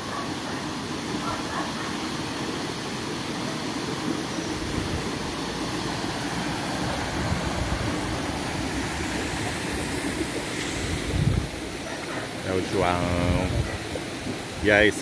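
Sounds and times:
waterfall rushing: 0.0s - 15.0s
wind buffeting microphone: 6.8s - 11.8s, 13.1s - 14.8s.

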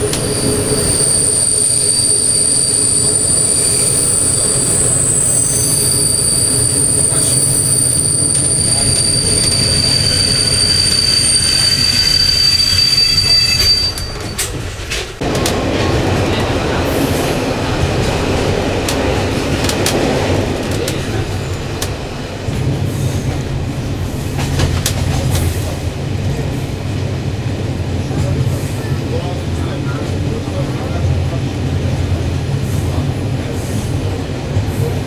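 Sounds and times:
train wheels squealing: 0.0s - 14.7s
rail joint clicks: 0.0s - 26.4s
train rumbling over bridge: 0.0s - 35.0s.

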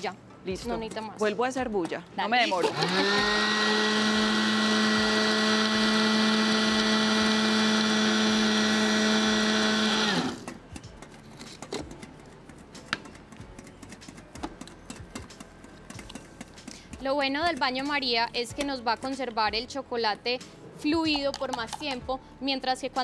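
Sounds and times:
electric food chopper running: 2.6s - 10.6s.

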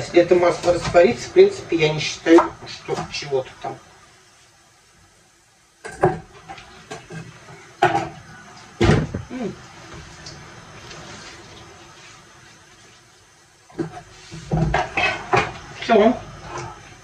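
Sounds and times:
soft rustle of cabbage: 10.1s - 13.2s.

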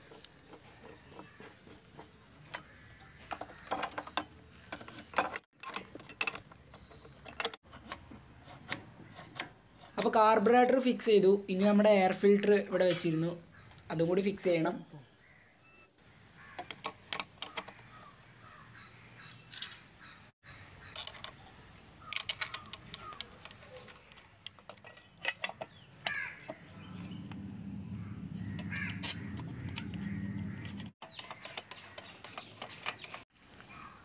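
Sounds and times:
birds calling: 0.0s - 5.5s, 13.4s - 34.0s
clicks and metal knocks: 1.9s - 10.2s, 16.6s - 17.9s, 20.9s - 21.4s, 22.1s - 27.4s, 28.4s - 33.3s
steady low hum: 26.7s - 30.9s.

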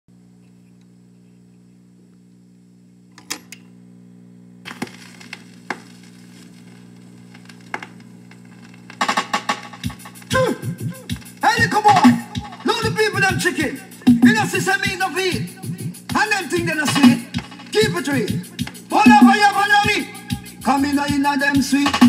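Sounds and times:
electrical hum: 0.1s - 22.0s
record surface hiss and pops: 0.1s - 22.0s
run of record clicks: 4.7s - 15.1s, 16.1s - 20.4s.

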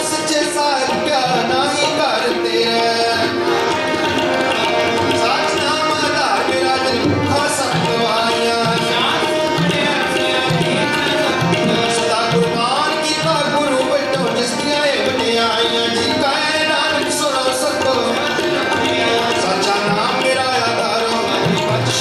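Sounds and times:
harmonium chords and melody: 0.0s - 22.0s
tabla rhythm: 0.0s - 22.0s.

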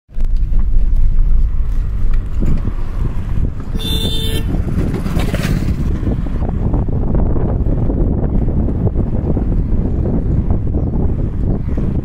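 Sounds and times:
traffic rumble: 0.1s - 12.0s
wind: 0.1s - 12.0s
vehicle horn toot: 3.8s - 4.6s.

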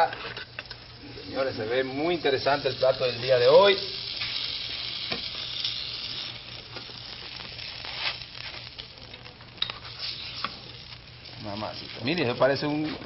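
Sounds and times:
food sizzling in a skillet: 0.0s - 13.0s.

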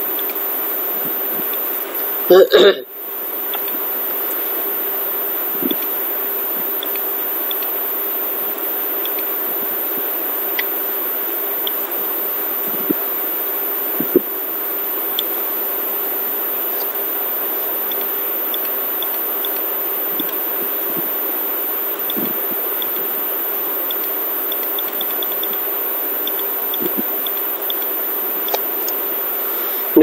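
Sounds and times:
faint ticks: 3.4s - 3.8s, 5.6s - 5.9s, 6.7s - 7.8s, 8.5s - 9.3s, 9.9s - 10.8s, 11.6s - 11.9s, 12.7s - 13.1s, 15.1s - 15.4s, 17.8s - 21.3s, 21.9s - 29.0s.

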